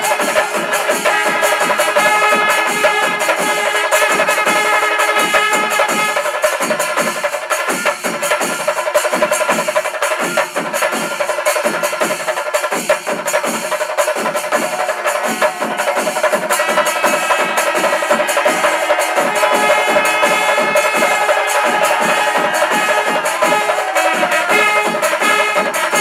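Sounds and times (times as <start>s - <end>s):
horns sounding long notes: 0.0s - 6.7s, 14.4s - 26.0s
drums beating driving rhythm: 0.0s - 26.0s
ringing cymbals: 0.0s - 26.0s.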